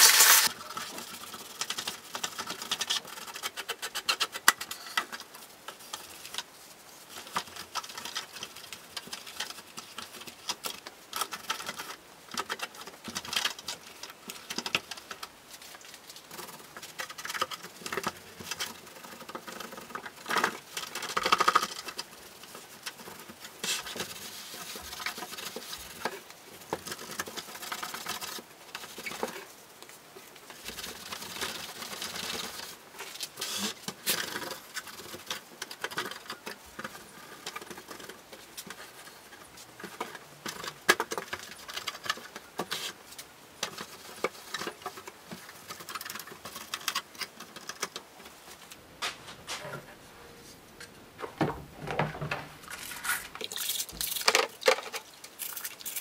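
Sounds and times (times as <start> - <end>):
cloth rubbing plastic: 0.0 - 1.4, 30.2 - 35.5, 43.7 - 56.0
plastic parts clicking and knocking: 50.8 - 56.0.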